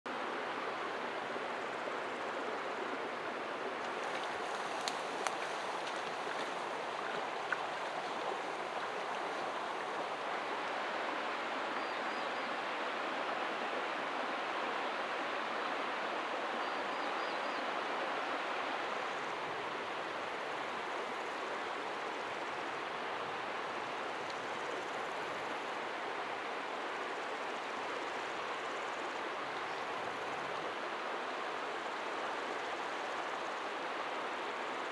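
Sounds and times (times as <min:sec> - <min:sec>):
stream flowing over stones: 0:00.1 - 0:34.9.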